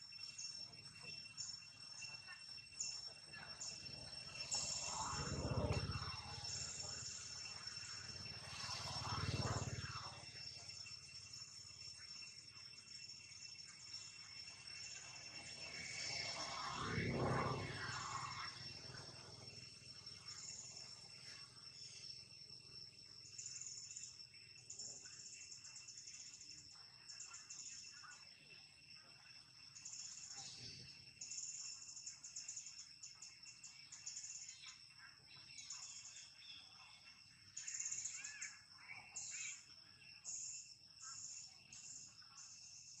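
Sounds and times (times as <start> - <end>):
insects trilling: 0.0 - 43.0
steady high insect whine: 0.0 - 43.0.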